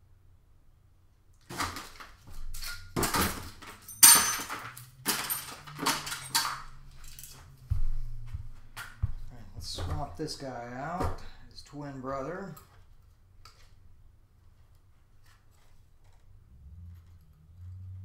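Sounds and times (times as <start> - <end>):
parts clattering and rustling: 1.4 - 11.4
low thump: 7.6 - 10.2.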